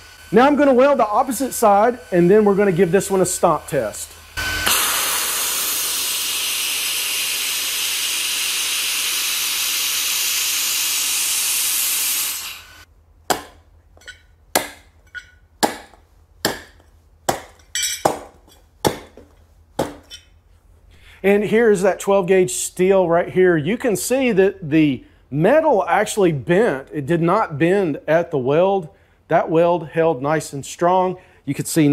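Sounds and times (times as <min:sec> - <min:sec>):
laser welder hissing: 0:00.0 - 0:12.9
shoe stomping on steel: 0:13.3 - 0:20.2.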